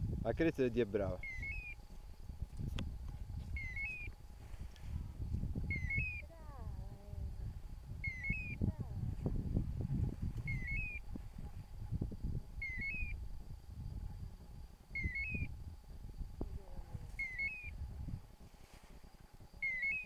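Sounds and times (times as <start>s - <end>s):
low rumbling noise: 0.0s - 19.7s
quail calling: 1.2s - 1.8s, 3.5s - 4.1s, 5.7s - 6.4s, 8.0s - 8.7s, 10.4s - 11.0s, 12.6s - 13.2s, 15.0s - 15.5s, 17.2s - 17.8s, 19.6s - 20.0s.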